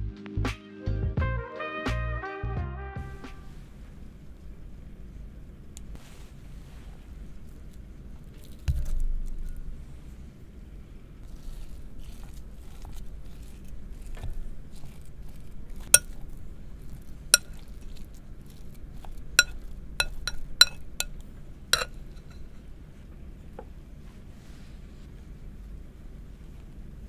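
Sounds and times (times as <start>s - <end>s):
faint scraping: 8.4s - 22.8s
spoon clinking on glass bowl: 16.0s - 16.2s, 17.4s - 17.7s, 19.4s - 21.2s, 21.8s - 22.6s.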